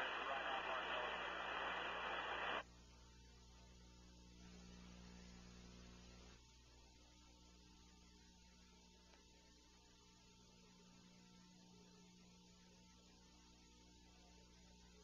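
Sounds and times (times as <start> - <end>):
radio static hiss: 0.0 - 2.7
faint electrical mains hum: 0.0 - 15.0.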